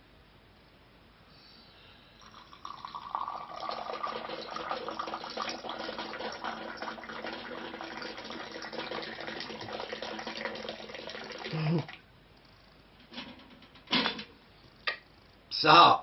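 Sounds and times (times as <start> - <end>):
tea splashing into a glass: 2.2 - 12.0.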